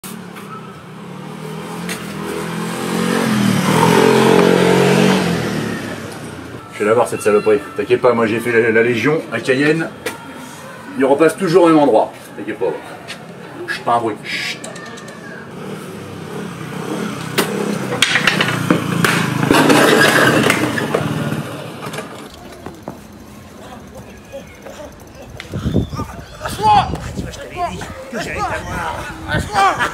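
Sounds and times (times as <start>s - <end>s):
motor scooter driving past: 0.1s - 6.7s, 15.2s - 22.5s
scooter scraping crash on road: 17.3s - 23.0s.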